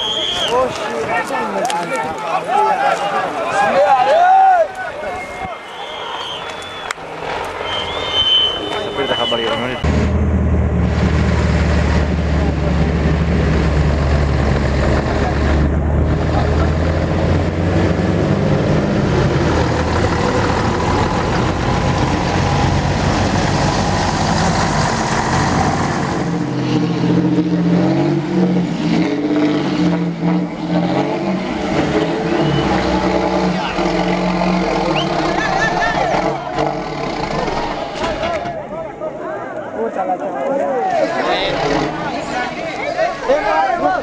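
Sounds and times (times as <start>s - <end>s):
people's voices: 0.0s - 9.9s, 14.5s - 17.5s, 29.5s - 44.0s
bus engine revving: 5.7s - 38.6s, 41.0s - 43.9s.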